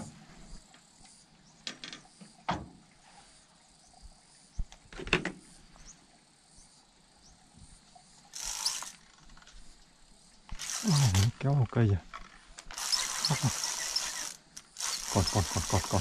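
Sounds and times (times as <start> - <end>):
fishing gear knocks and clicks: 12.1 - 16.0.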